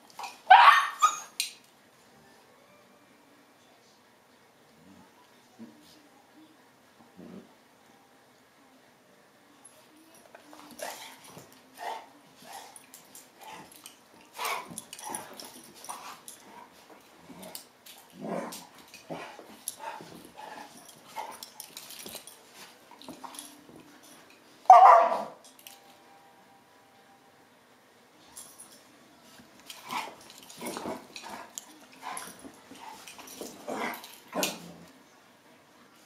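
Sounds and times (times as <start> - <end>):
dog barking: 0.5 - 1.0, 24.7 - 25.4
dogs growling and yipping: 17.2 - 22.2, 29.7 - 34.9.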